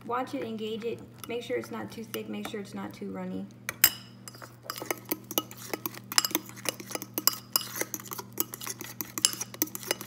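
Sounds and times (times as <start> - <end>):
fork clinking against bowl: 3.8 - 10.0.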